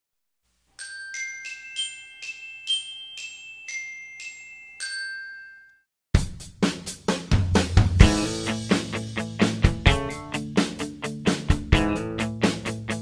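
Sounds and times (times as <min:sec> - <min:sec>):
bell-like mallet jingle: 0:00.8 - 0:05.9
loud drum beat: 0:06.2 - 0:13.0.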